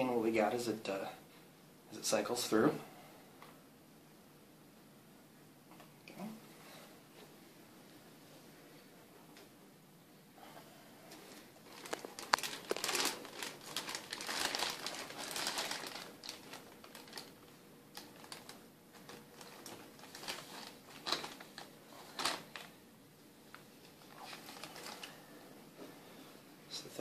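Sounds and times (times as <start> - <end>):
plastic bag crinkling: 11.3 - 22.8, 24.0 - 25.2.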